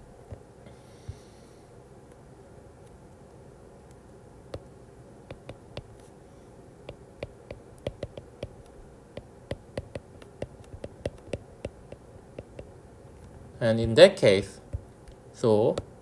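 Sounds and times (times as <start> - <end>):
faint room hum: 0.0 - 16.0
stylus tapping on glass screen: 5.3 - 5.9, 6.9 - 12.7.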